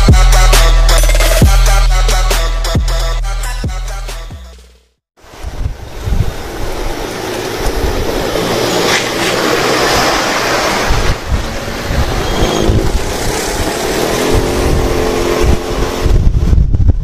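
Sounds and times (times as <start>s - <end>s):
wind rushing over microphone: 5.2s - 17.0s
motorcycle engine: 7.0s - 16.8s.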